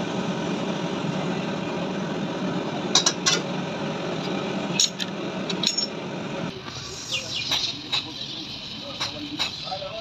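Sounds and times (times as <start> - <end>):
hand tool clinking on metal: 4.8 - 6.0.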